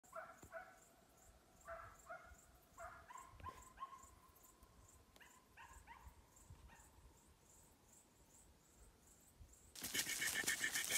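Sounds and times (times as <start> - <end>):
cricket chirping: 0.0 - 10.9
faint dog barking and yelping: 1.7 - 4.2, 5.2 - 7.0.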